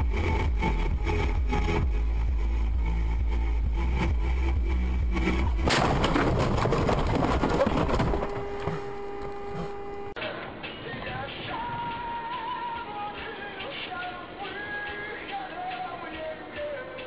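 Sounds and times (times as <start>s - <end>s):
car crash clattering: 5.6s - 10.2s.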